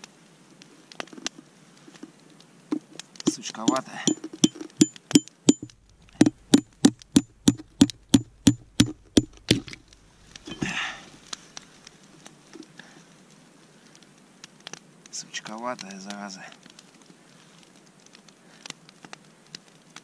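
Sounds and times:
hatchet knocking on knife spine: 3.3s - 9.8s.

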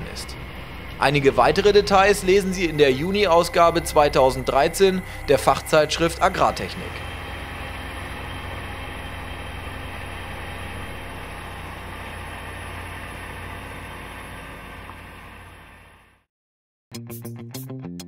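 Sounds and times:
tractor engine under load: 0.0s - 16.2s.

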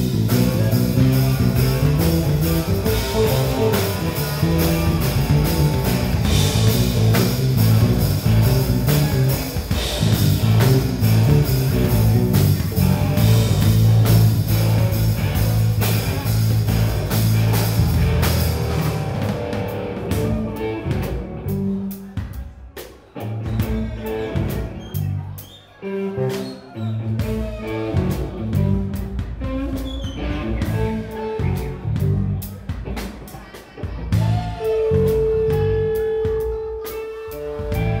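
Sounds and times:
rock band playing live: 0.0s - 38.0s.

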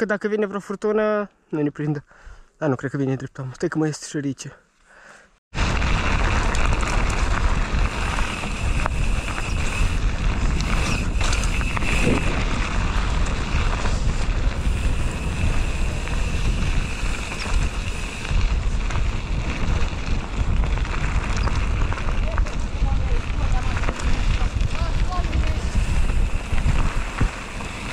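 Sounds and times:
wind rushing over microphone: 5.5s - 27.9s
tyres rolling on gravel: 5.6s - 27.9s.

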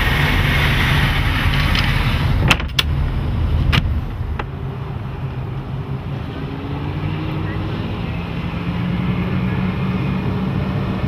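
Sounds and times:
boat engines idling: 0.0s - 11.0s.

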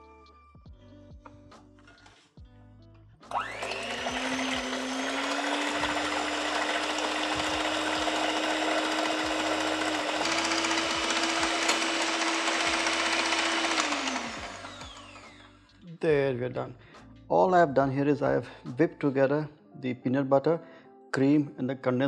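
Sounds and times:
electric hand mixer whirring: 3.3s - 15.6s.

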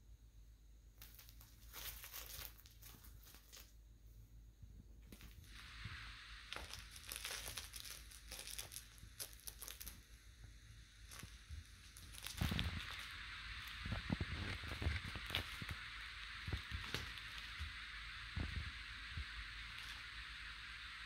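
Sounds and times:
cat scratching plush toy: 5.2s - 10.2s, 11.0s - 20.5s.

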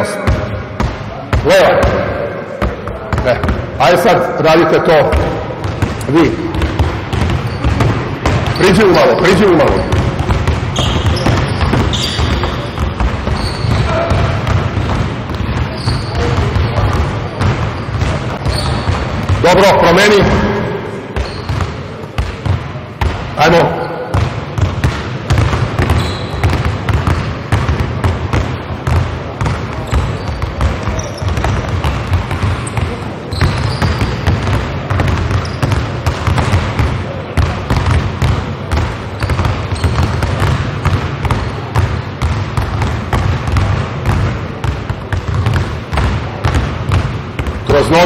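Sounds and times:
basketballs bouncing on hardwood floor: 0.0s - 48.0s
short high shoe squeaks: 7.4s - 7.8s, 10.7s - 14.1s, 15.7s - 16.4s, 18.4s - 18.9s, 21.2s - 21.6s, 25.9s - 26.5s, 29.9s - 31.4s, 32.5s - 34.2s, 35.4s - 35.8s, 39.2s - 40.2s.

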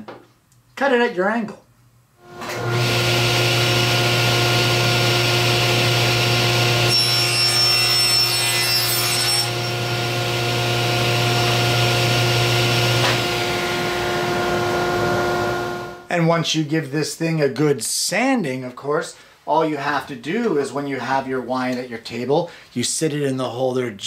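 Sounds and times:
table saw cutting wood: 2.2s - 16.0s.

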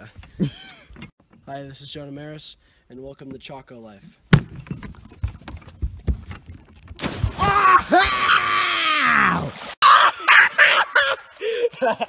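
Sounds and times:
bare feet thudding on wood: 4.3s - 7.4s
person yelling: 7.4s - 11.3s.

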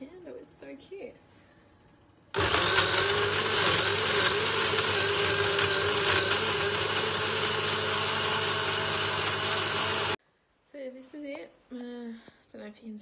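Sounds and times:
blender motor whirring: 2.4s - 10.2s.

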